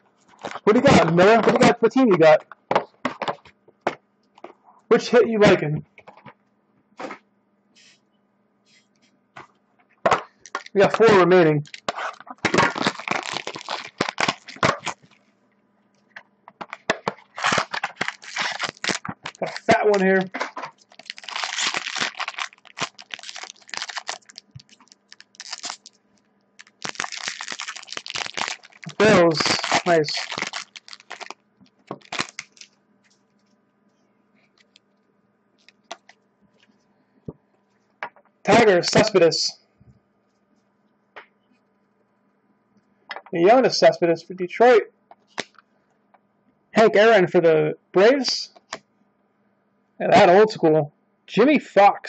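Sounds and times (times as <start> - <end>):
plastic packaging crinkling: 0.2 - 1.8, 10.3 - 15.3, 16.6 - 33.6, 34.5 - 34.9, 35.6 - 36.7.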